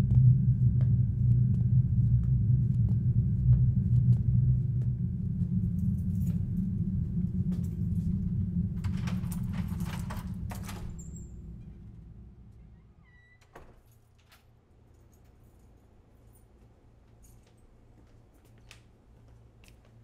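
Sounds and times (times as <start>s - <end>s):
deep low rumble: 0.0s - 13.1s
key turning in door lock: 8.8s - 11.6s
keys rattling: 8.8s - 11.9s, 13.7s - 17.7s.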